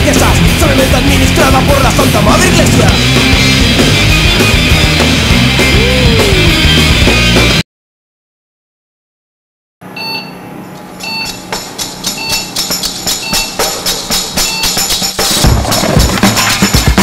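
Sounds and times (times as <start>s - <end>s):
heavy bass drum: 0.0s - 7.6s, 12.6s - 17.0s
percussion music track: 0.0s - 7.6s, 11.0s - 17.0s.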